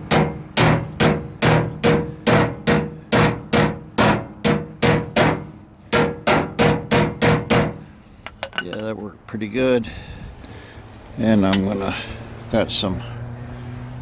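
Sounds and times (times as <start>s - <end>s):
hammer striking sheet steel: 0.0s - 8.7s.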